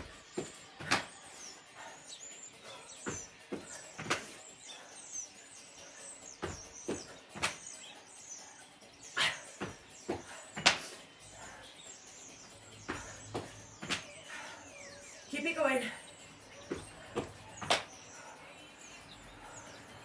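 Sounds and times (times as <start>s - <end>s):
feet thudding on exercise mat: 0.0s - 1.4s, 2.7s - 4.4s, 6.3s - 7.6s, 9.2s - 11.0s, 12.8s - 14.2s, 16.6s - 18.0s
small birds chirping: 0.0s - 20.0s.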